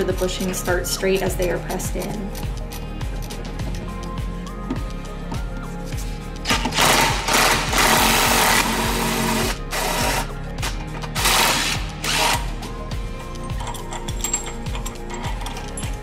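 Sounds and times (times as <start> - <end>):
background music: 0.0 - 16.0
impact wrench bursts: 6.5 - 10.3.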